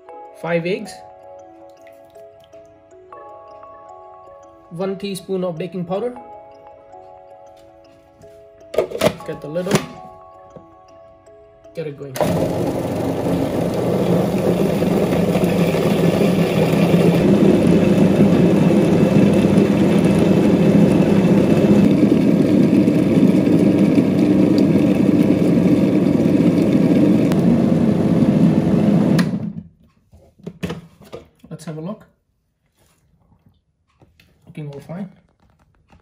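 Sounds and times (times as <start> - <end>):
food processor running: 12.2 - 29.6.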